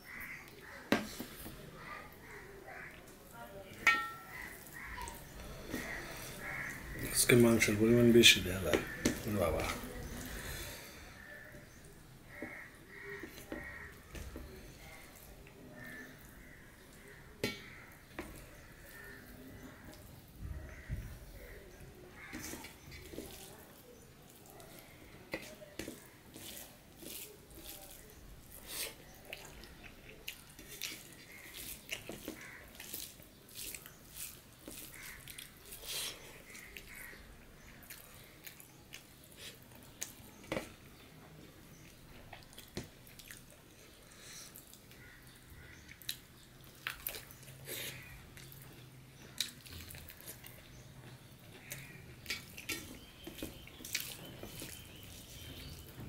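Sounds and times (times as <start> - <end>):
person chewing food: 4.1 - 7.1, 8.6 - 56.0.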